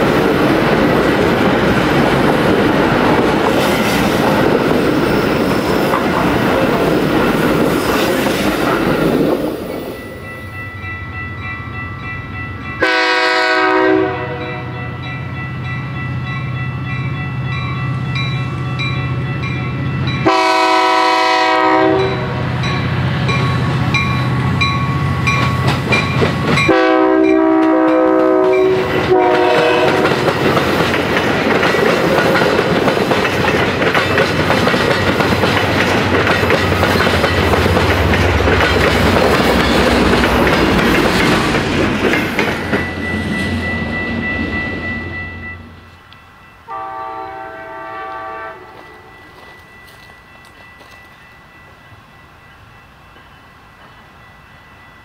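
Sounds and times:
train wheel and rail noise: 0:00.0 - 0:55.0
bell ringing: 0:09.8 - 0:12.8, 0:42.6 - 0:46.7, 0:48.8 - 0:53.0
train horn blasts: 0:12.8 - 0:15.0, 0:20.2 - 0:22.7, 0:26.6 - 0:30.3, 0:46.7 - 0:49.5.

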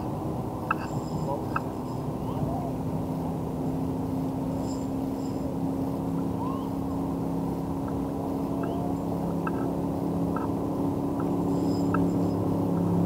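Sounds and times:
faint bird chirps: 0:06.3 - 0:06.9, 0:08.4 - 0:09.7, 0:11.2 - 0:12.6.

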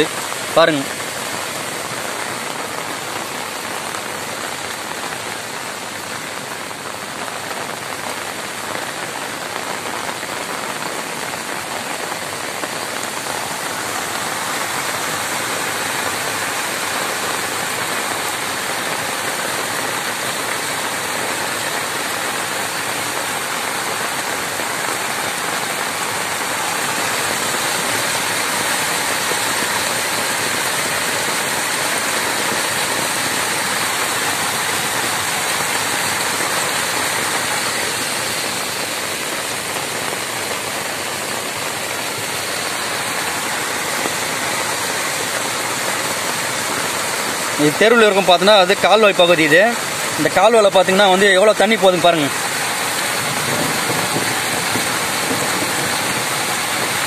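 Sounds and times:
floodwater rushing over a step: 0:00.0 - 0:57.0
heavy rain pouring: 0:00.0 - 0:57.0.

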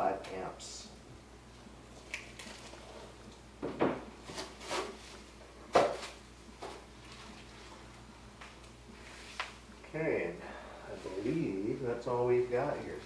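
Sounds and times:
packaging rustling: 0:02.0 - 0:03.1.

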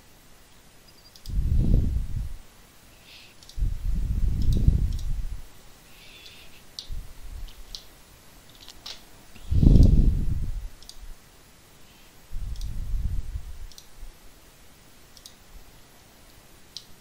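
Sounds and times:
computer mouse clicks: 0:01.0 - 0:01.4, 0:03.3 - 0:03.6, 0:04.4 - 0:05.2, 0:06.1 - 0:07.9, 0:10.8 - 0:11.0, 0:12.5 - 0:12.8, 0:13.7 - 0:13.9, 0:15.1 - 0:15.4
low dull rumbles: 0:01.3 - 0:02.4, 0:03.6 - 0:05.5, 0:12.3 - 0:13.7.

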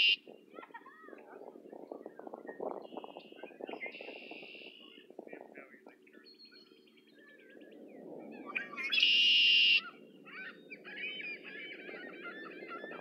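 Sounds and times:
blackbird singing buzzy trill: 0:00.0 - 0:00.2, 0:06.1 - 0:13.0
soft bird chirping: 0:01.5 - 0:13.0.

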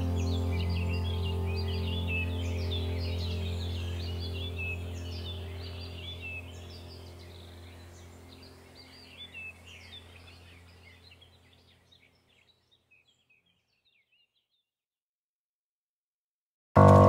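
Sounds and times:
low steady hum: 0:00.0 - 0:12.2
birds chirping and trilling: 0:00.0 - 0:14.7.

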